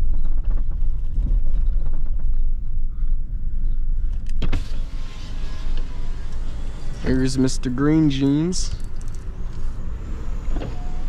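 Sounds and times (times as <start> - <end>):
vehicle engine and tyre rumble: 0.0 - 11.0
outside air hiss: 3.8 - 11.0
power window going down: 4.5 - 7.4, 9.5 - 11.0.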